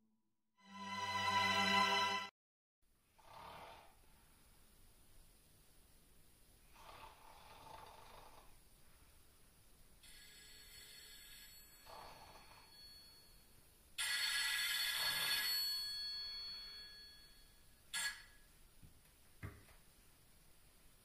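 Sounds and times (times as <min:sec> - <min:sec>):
bell ringing: 0:14.1 - 0:18.4.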